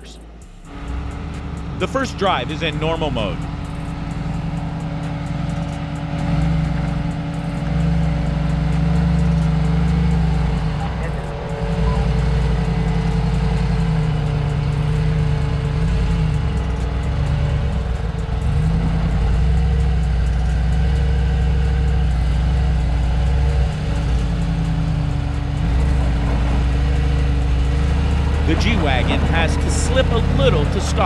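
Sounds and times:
engine running at low revs: 0.0s - 31.0s.

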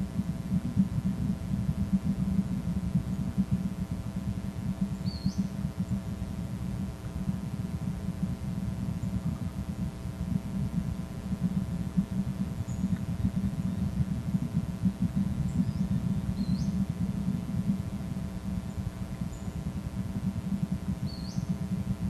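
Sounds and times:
faint electrical hum: 0.0s - 22.0s
steady low rumble: 0.0s - 22.0s
bird chirps and whistles: 5.0s - 5.5s, 15.5s - 16.8s, 21.0s - 21.6s.

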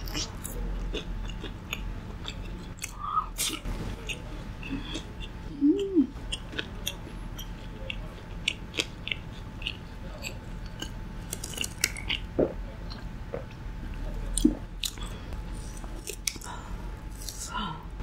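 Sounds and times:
mouth chewing and biting food: 0.0s - 16.5s
wet mouth sounds: 4.8s - 13.6s.

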